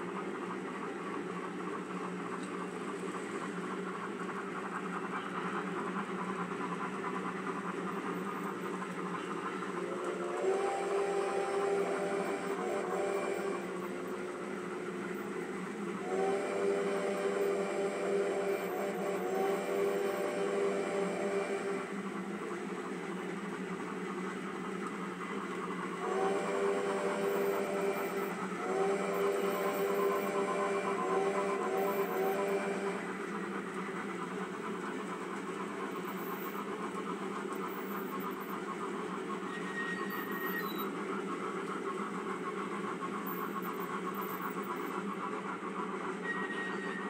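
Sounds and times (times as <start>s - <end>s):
model train motor whir: 1.6s - 47.0s
steam whistle: 9.9s - 14.4s, 16.0s - 21.9s, 26.0s - 33.2s, 46.2s - 47.0s.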